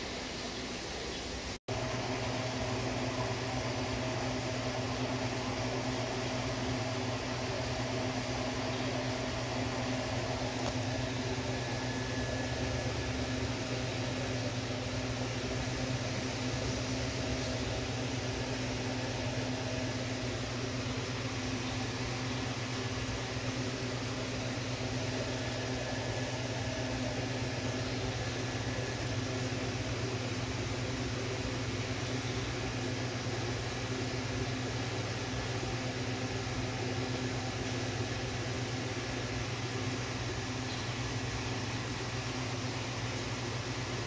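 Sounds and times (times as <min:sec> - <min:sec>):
constant hiss: 0:00.0 - 0:44.0
low electrical hum: 0:00.0 - 0:44.0.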